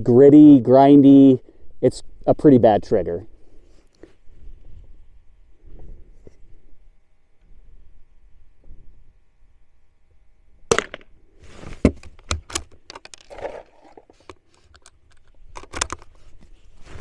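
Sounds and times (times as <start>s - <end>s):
handling rustle: 11.4s - 17.0s.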